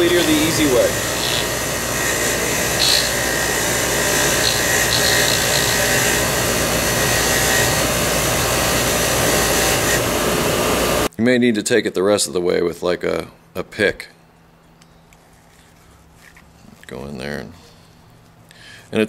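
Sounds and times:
bench grinder grinding metal: 0.0s - 11.1s.

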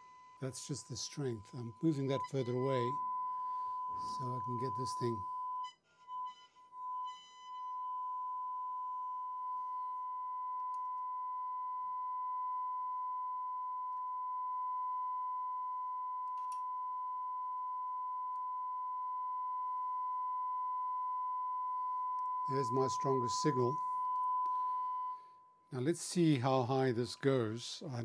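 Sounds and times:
high-pitched test tone: 0.4s - 10.8s, 22.2s - 25.3s.

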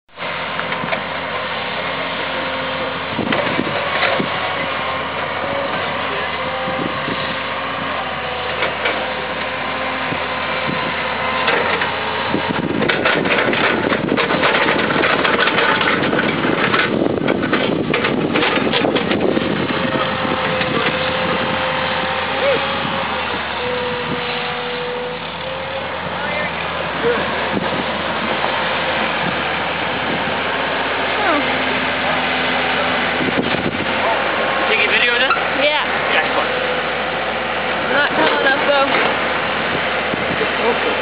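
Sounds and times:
excavator diesel engine: 0.1s - 41.0s
rattling and knocking: 11.4s - 21.4s.

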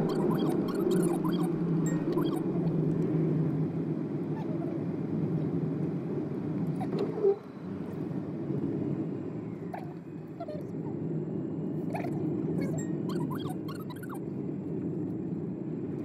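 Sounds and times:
car engine and tyres rumbling: 0.0s - 16.0s
short squeak: 0.1s - 2.4s, 12.6s - 14.2s.

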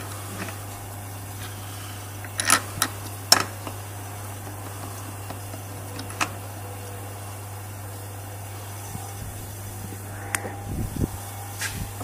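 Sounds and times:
low hum: 0.0s - 12.0s
metal bolts clicking: 2.3s - 3.8s.

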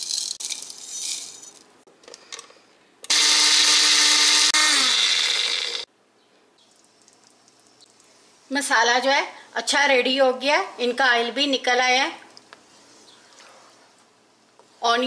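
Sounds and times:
blender grinding spices: 3.1s - 5.9s.

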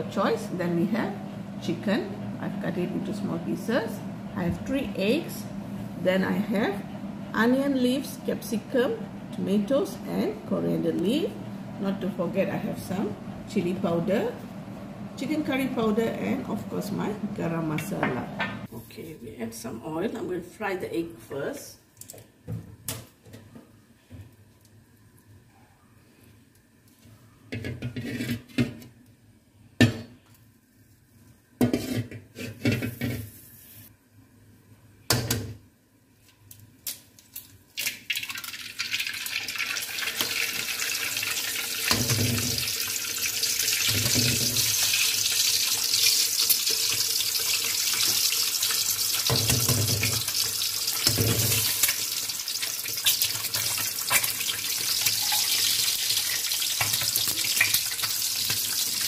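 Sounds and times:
eggs sizzling in hot oil: 37.3s - 59.0s
eggs cracked against pan: 45.7s - 59.0s.

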